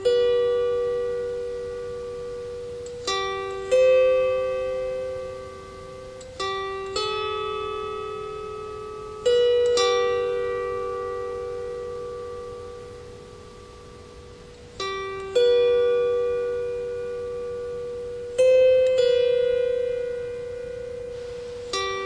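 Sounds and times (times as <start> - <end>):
harp plucked notes: 0.0 - 22.0.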